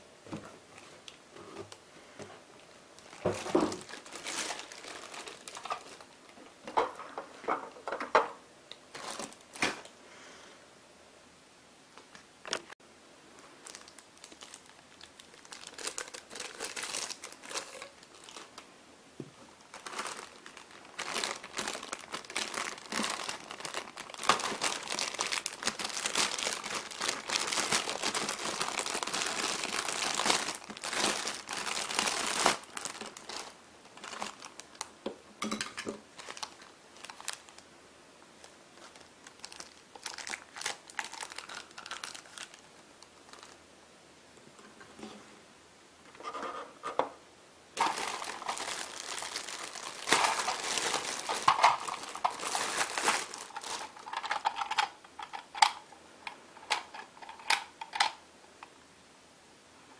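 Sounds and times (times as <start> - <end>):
plastic bag crinkling: 2.6 - 6.2, 8.9 - 9.9, 13.6 - 18.6, 19.6 - 34.9, 35.7 - 37.6, 38.4 - 43.6, 47.8 - 58.2.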